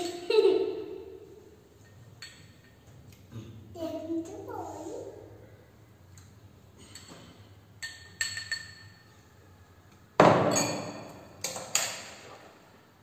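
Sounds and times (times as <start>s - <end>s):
spoon clinking bowls: 1.8s - 2.8s, 6.8s - 9.3s, 10.4s - 11.7s
ringing clatter of bowls: 7.8s - 9.3s, 10.4s - 11.6s.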